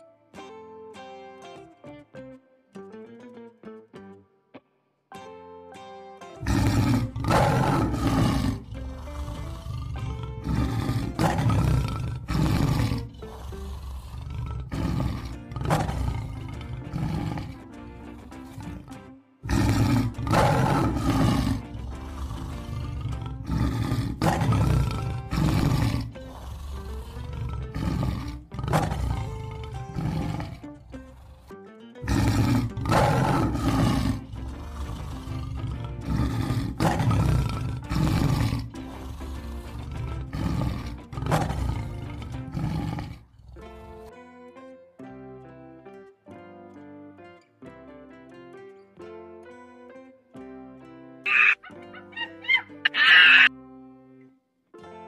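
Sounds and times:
lion roaring: 6.4 - 44.2, 51.3 - 53.5.

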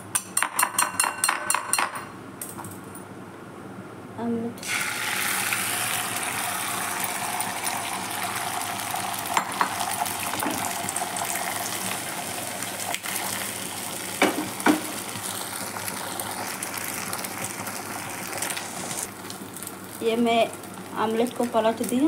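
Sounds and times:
egg sizzling in hot oil: 4.6 - 22.0.

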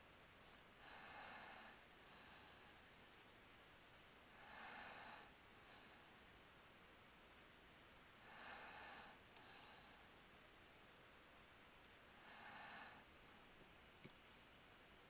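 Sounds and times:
soft breathing into microphone: 0.5 - 3.2, 8.2 - 10.4, 11.9 - 13.6.

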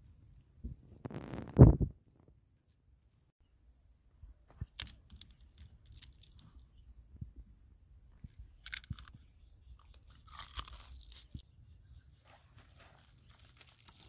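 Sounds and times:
fried chicken skin crunching: 10.1 - 11.4, 13.1 - 14.0.

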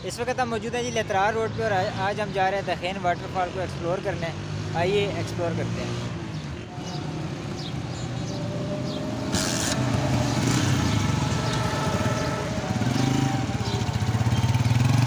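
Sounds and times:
motorcycle engine revving: 4.3 - 15.0.

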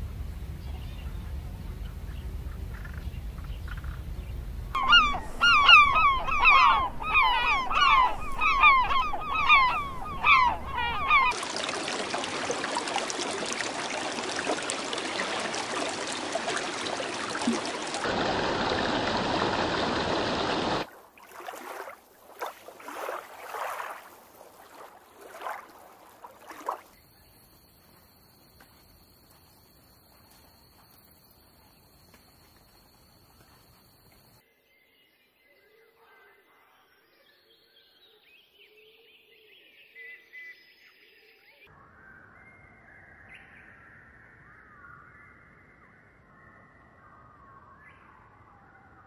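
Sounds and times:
geese honking: 4.8 - 11.4.

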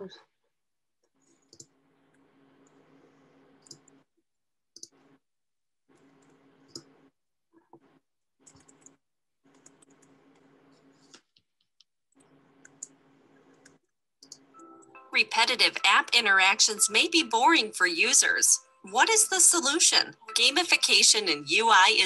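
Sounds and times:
computer mouse clicks: 3.6 - 4.0, 6.0 - 6.9, 8.4 - 11.4, 12.2 - 14.5.

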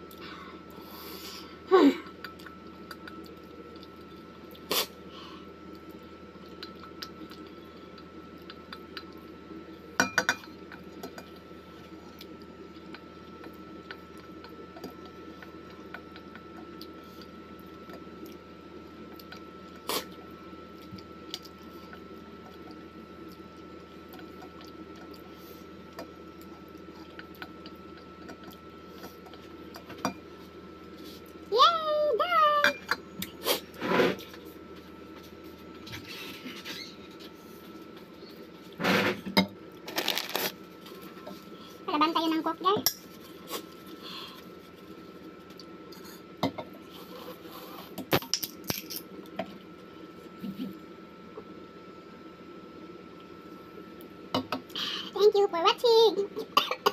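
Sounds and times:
background hum with high tone: 0.0 - 56.9.

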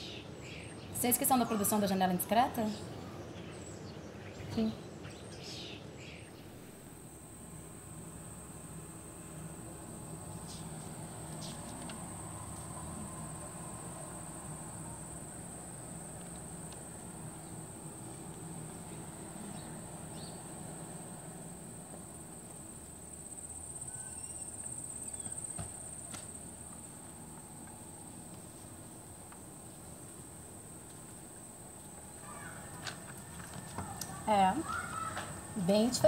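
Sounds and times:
faint background hiss: 0.0 - 36.0
insects chirring: 0.0 - 36.0.

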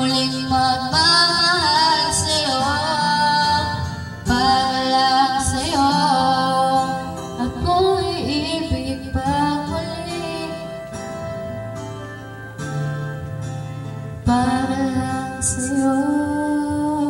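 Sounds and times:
woman singing into microphone: 0.0 - 11.7, 14.2 - 17.0
karaoke backing track: 0.0 - 17.0.

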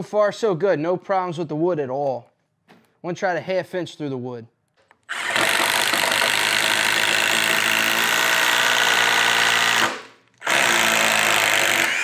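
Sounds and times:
impact driver drilling into wood: 5.0 - 12.0.

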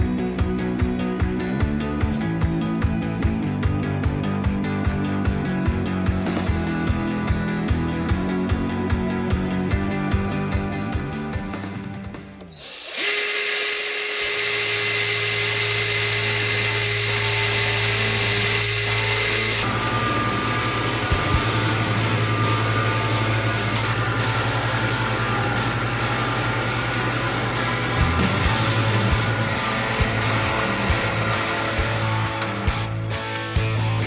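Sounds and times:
electric motor whining: 12.6 - 33.0
low steady motor hum: 13.2 - 32.4.

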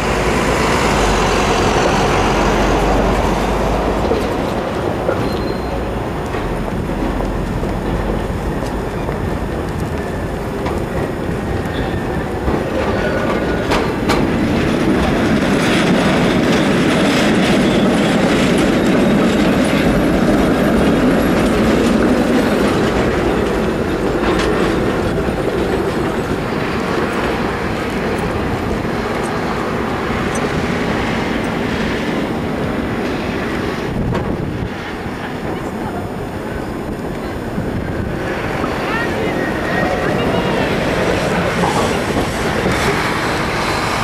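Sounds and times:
tram wheels clattering over points: 0.0 - 44.0
faint wheel squeal: 5.2 - 5.9.

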